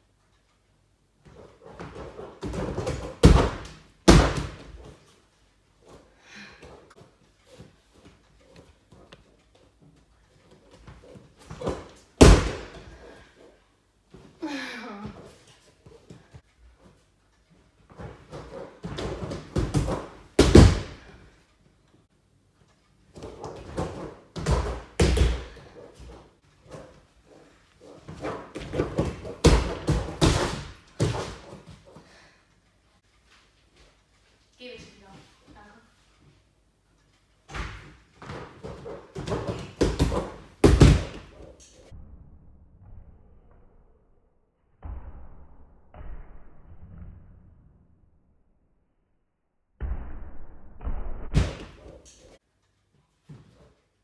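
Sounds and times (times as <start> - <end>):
light running steps: 4.7 - 12.2
bare feet thumping on inflatable mat: 37.5 - 41.4.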